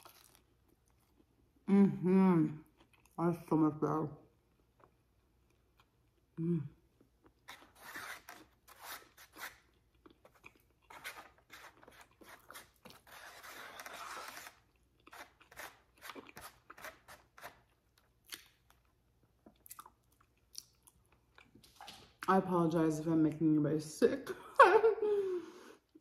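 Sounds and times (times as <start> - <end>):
chewing and crunching food: 0.0 - 1.6, 2.6 - 3.2, 7.0 - 22.3
plastic fork scraping foam box: 10.9 - 17.6.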